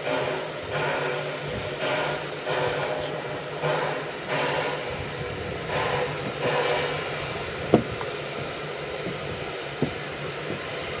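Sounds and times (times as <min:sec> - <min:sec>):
steam locomotive chuffing: 0:00.0 - 0:11.0.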